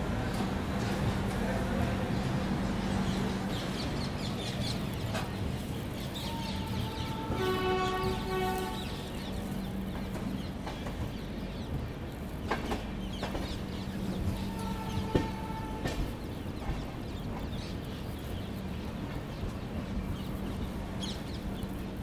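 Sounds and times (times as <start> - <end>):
train rumbling: 0.0 - 22.0
locomotive horn: 6.2 - 9.1, 14.3 - 16.1.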